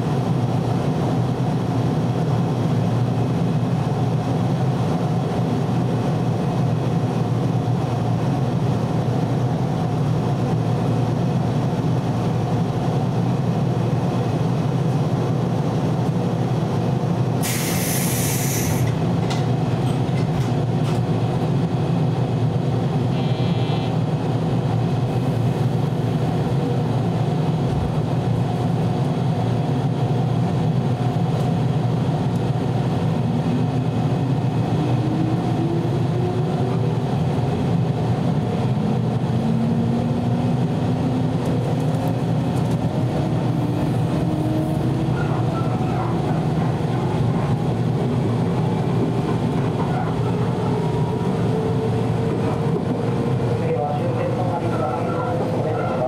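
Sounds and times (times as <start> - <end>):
train running rumble: 0.0 - 56.0
brief hiss: 17.4 - 18.9.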